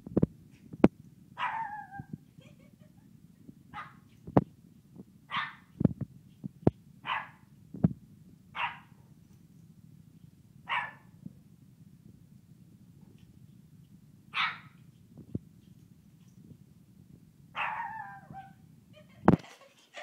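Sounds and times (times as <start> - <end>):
puppy yapping: 1.4 - 2.1, 5.3 - 5.7, 7.0 - 7.4, 8.6 - 9.0, 10.7 - 11.1, 14.3 - 14.8, 17.6 - 18.6.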